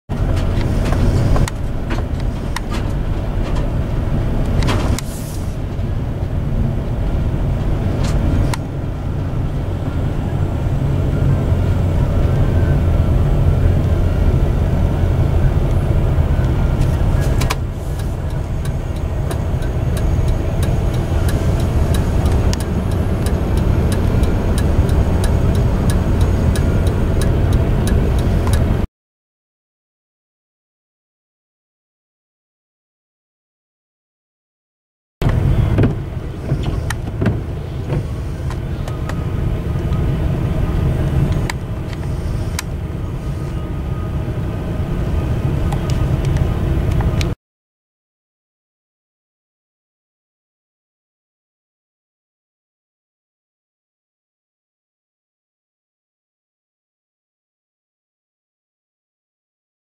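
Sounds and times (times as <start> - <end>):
car road and engine rumble: 0.1 - 28.9, 35.2 - 47.4.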